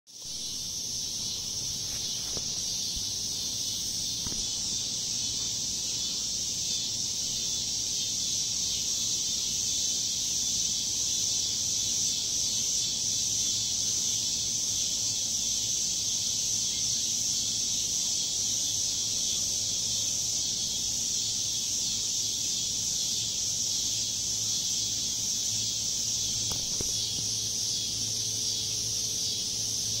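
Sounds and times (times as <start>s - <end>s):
insects droning: 0.1s - 30.0s.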